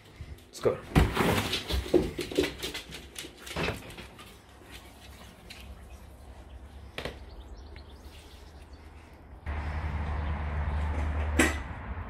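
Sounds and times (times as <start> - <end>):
dog paws on hard floor: 1.0 - 6.1
low outdoor background: 2.1 - 12.0.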